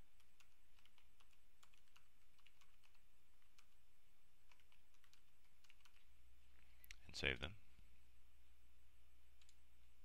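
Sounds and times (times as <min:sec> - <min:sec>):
low steady hum: 0:00.0 - 0:10.0
typing on computer keyboard: 0:00.2 - 0:03.8, 0:04.4 - 0:06.1.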